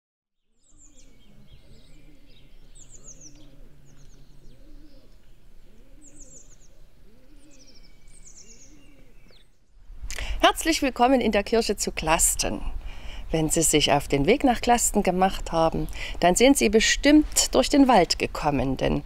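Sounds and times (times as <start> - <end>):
small birds chirping: 0.4 - 19.0
pigeon cooing: 0.9 - 9.3.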